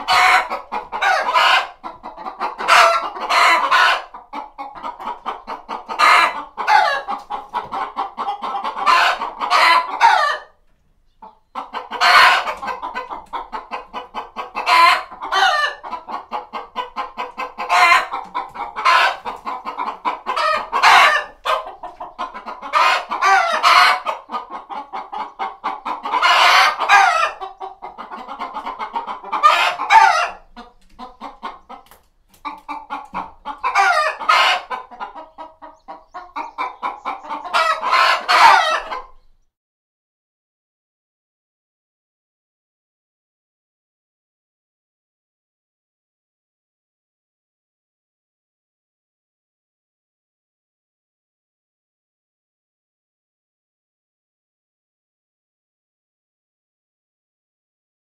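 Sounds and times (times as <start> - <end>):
loud hen squawking: 0.0 - 39.3
hens clucking: 0.0 - 39.5.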